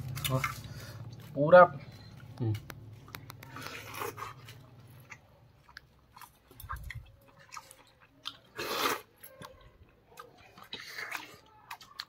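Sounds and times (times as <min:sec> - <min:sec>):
person chewing food: 0:01.9 - 0:12.0.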